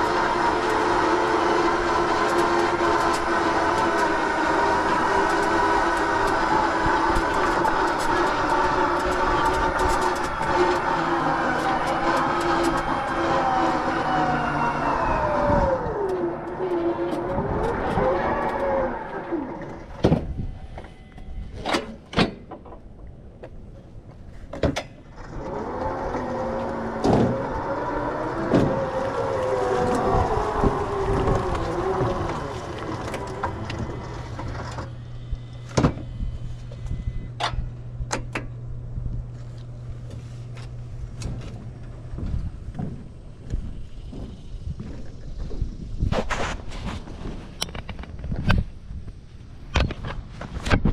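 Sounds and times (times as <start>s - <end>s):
electric motors whining: 0.0s - 21.6s, 25.1s - 48.5s
steady low hum: 26.1s - 50.9s.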